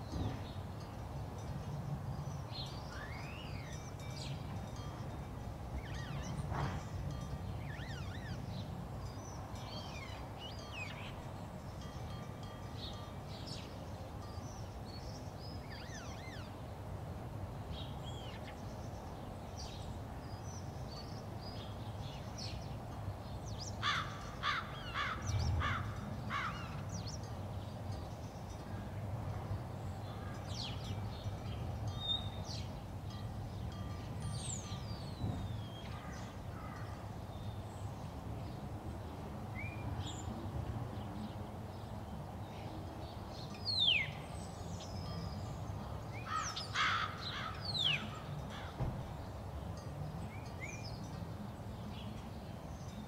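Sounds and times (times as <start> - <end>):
birds calling: 43.5 - 49.4.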